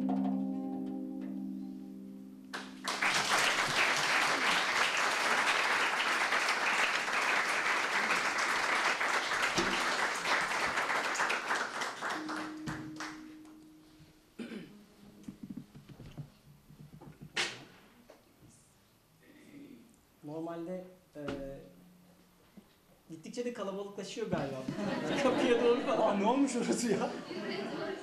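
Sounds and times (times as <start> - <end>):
plucked kanun strings: 0.0 - 2.8, 9.6 - 10.0, 12.2 - 17.8
audience applauding: 2.5 - 13.4.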